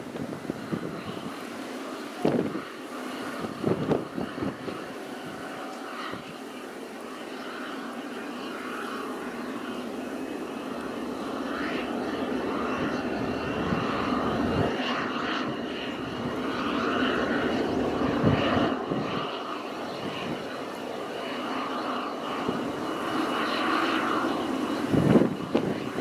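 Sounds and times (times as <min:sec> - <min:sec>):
helicopter rotor noise: 0:00.0 - 0:26.0
turbine engine whine: 0:00.0 - 0:26.0.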